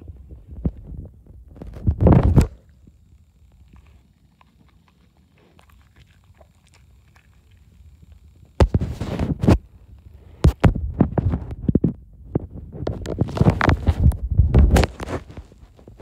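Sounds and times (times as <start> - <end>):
microphone thumps and rustling: 0.0 - 2.6, 8.6 - 9.7, 10.4 - 16.0.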